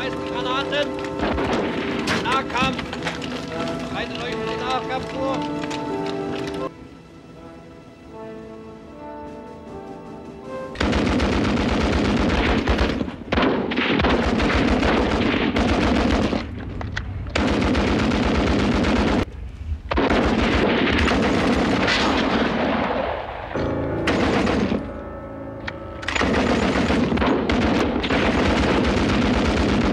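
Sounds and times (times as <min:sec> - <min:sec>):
music: 0:00.0 - 0:16.3, 0:20.6 - 0:29.9
machine gun firing bursts: 0:10.8 - 0:16.5, 0:17.4 - 0:19.3, 0:19.9 - 0:22.7, 0:24.1 - 0:24.9, 0:26.2 - 0:29.9.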